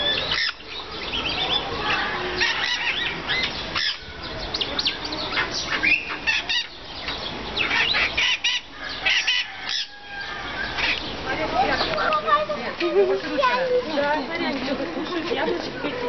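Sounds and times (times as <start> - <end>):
animals chirping: 0.0 - 16.0.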